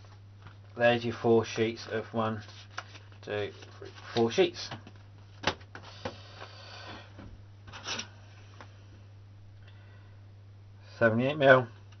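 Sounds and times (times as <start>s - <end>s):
steady low hum: 0.0s - 12.0s
thin card rustling: 2.4s - 4.3s.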